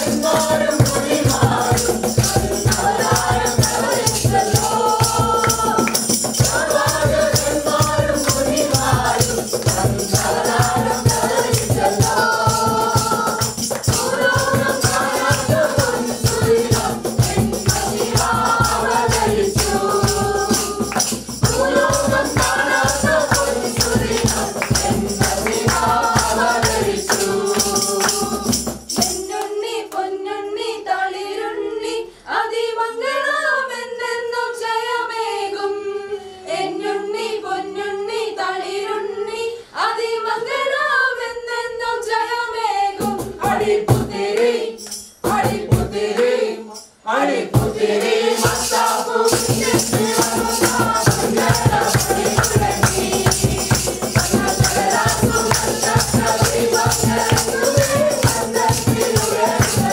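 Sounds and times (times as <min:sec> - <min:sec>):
rattling hand percussion: 0:00.0 - 0:29.5, 0:44.8 - 0:46.0, 0:47.6 - 0:59.9
group singing unaccompanied: 0:00.0 - 0:59.9
hand claps: 0:05.0 - 0:06.5, 0:13.6 - 0:14.2, 0:19.1 - 0:28.3, 0:50.2 - 0:59.9.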